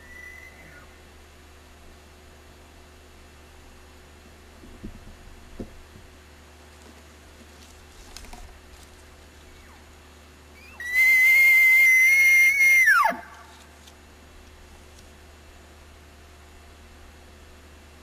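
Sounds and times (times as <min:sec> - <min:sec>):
elk bugling: 0:00.0 - 0:01.0, 0:09.3 - 0:13.7.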